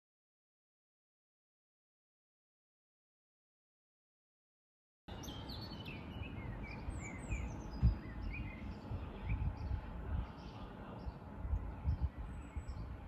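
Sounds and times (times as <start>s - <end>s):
low outdoor rumble: 5.1s - 13.0s
songbirds chirping: 5.1s - 13.0s.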